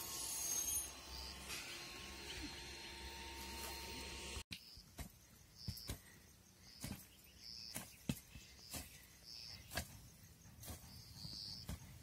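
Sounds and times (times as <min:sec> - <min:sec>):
hoes knocking into wet clay: 0:06.8 - 0:09.0.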